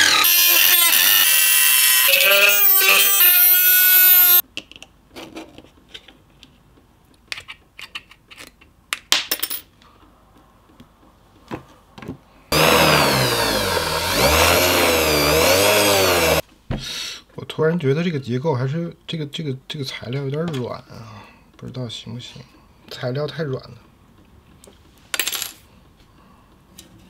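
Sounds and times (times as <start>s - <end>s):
rotary tool cutting metal: 0.0s - 4.4s, 12.5s - 16.4s.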